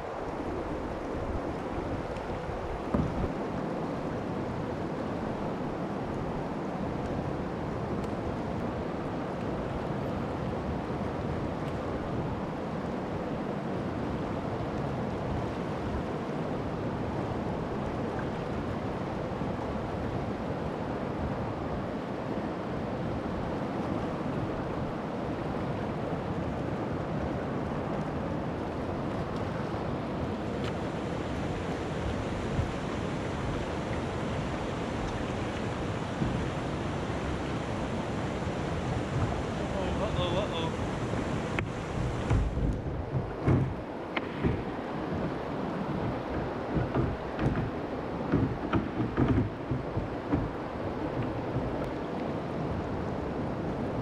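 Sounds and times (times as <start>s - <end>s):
river rapids rushing: 18.7s - 54.0s.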